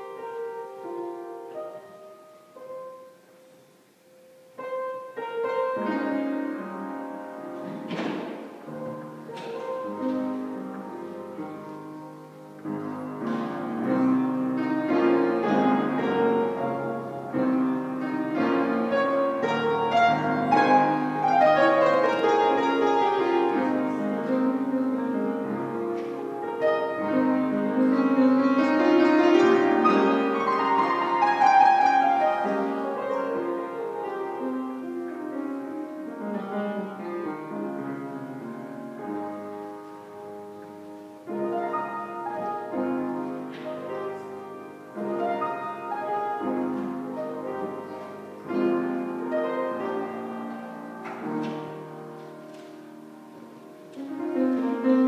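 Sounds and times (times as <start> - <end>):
classical piano music: 0.0 - 55.0.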